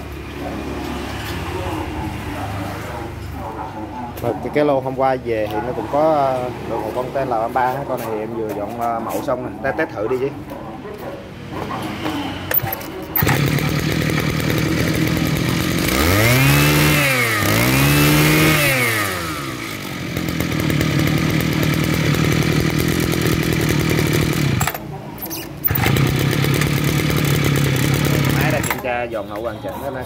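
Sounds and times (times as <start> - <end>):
brush-cutter engine idling and revving: 11.7 - 29.5.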